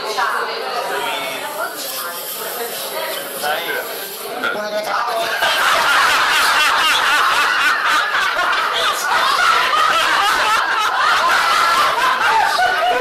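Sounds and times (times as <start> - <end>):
people laughing: 4.3 - 13.0.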